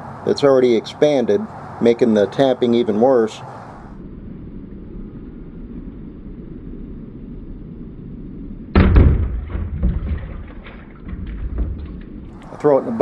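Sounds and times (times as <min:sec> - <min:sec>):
heavy splash into water: 0:08.8 - 0:12.0
hot metal crackling in water: 0:08.8 - 0:12.6.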